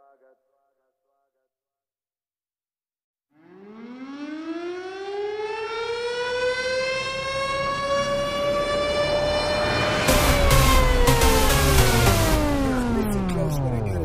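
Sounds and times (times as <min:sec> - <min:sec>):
siren-like rising wail: 0:03.4 - 0:14.0.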